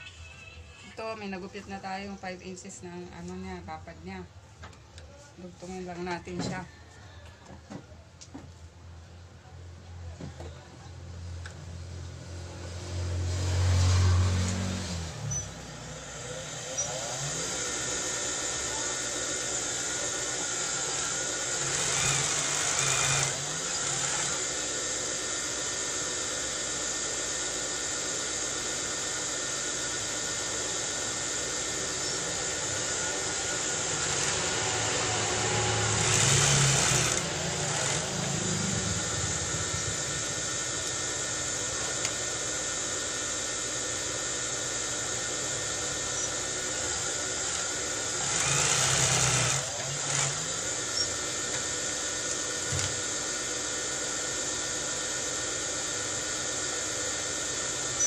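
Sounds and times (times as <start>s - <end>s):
motor hum: 10.0s - 58.0s
sewing machine stitching: 21.5s - 24.4s, 33.9s - 38.4s, 48.2s - 51.1s.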